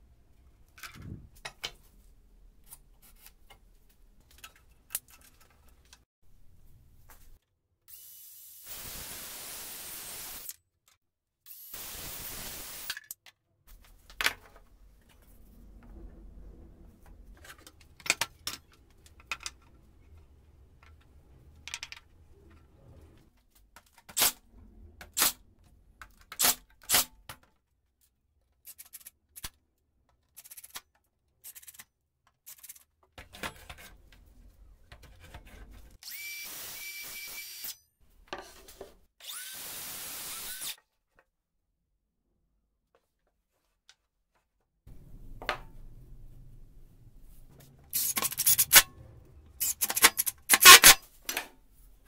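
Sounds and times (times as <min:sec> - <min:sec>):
knocks and clatter of handling: 0:03.4 - 0:06.0.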